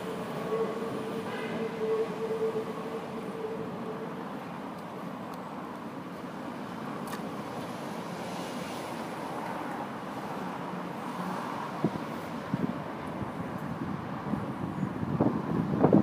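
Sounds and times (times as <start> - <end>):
distant tram running: 0.0 - 8.3
street noise: 0.0 - 16.0
wind on microphone: 11.8 - 16.0.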